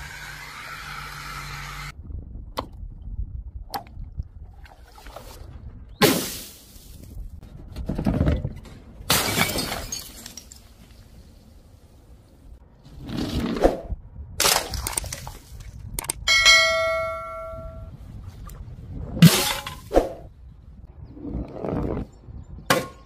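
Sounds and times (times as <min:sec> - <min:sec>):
objects smashing on tiled floor: 0:09.1 - 0:10.6
bell-like ding: 0:16.3 - 0:17.9.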